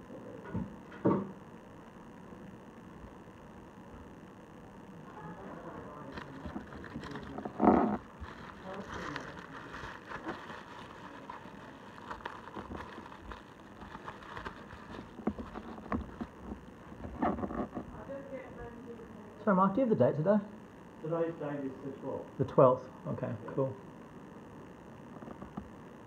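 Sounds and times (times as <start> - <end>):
small objects tapping and rustling: 6.2 - 17.8.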